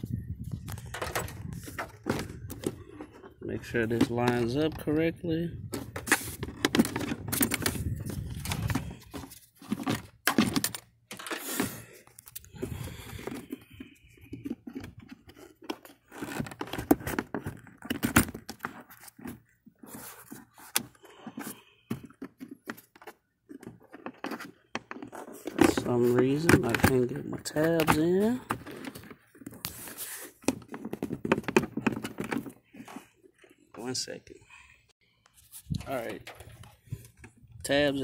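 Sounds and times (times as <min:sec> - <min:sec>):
hard plastic clicks and scrapes: 0:00.5 - 0:05.0, 0:05.6 - 0:33.6.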